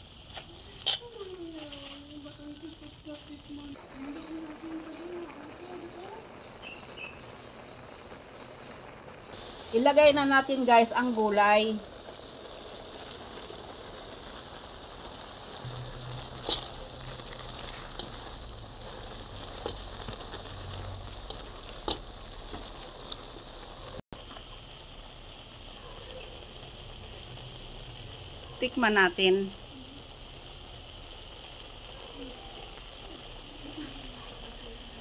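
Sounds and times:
noodles sizzling in a pan: 0:00.0 - 0:35.0
utensil clicking against pan: 0:21.2 - 0:23.2.

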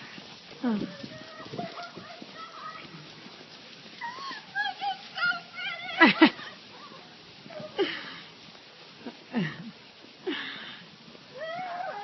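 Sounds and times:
person squealing excitedly: 0:11.4 - 0:12.0.

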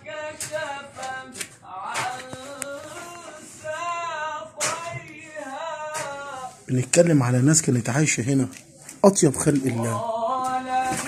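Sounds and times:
person singing: 0:00.0 - 0:06.7, 0:09.7 - 0:11.0
people talking: 0:04.6 - 0:10.1.

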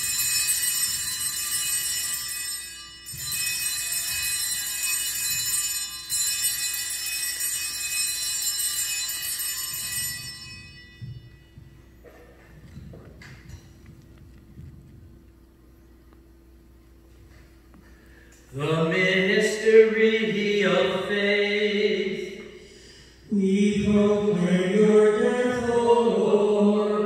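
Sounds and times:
altar bells jingling: 0:00.0 - 0:12.8.

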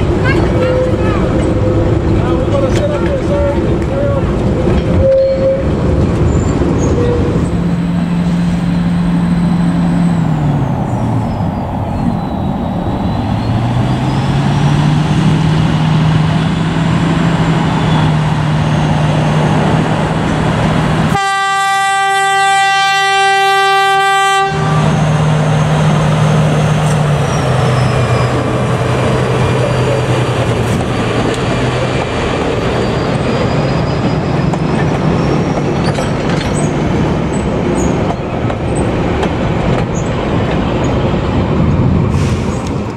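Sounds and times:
carriages rolling on track: 0:00.0 - 0:21.2, 0:24.8 - 0:42.0
diesel locomotive engine: 0:00.0 - 0:42.9
train horn blast: 0:21.1 - 0:25.1.

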